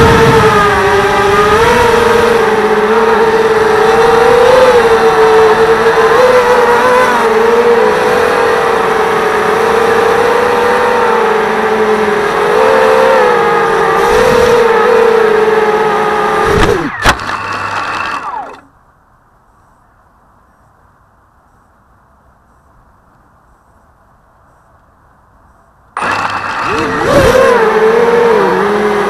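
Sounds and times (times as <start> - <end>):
drone motors whining: 0.0 - 18.7, 26.0 - 29.0.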